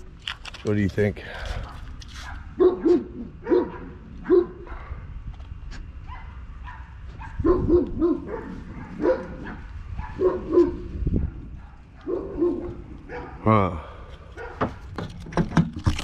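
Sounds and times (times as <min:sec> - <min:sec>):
dog barking: 0:01.7 - 0:05.0, 0:06.1 - 0:13.5, 0:14.4 - 0:14.8.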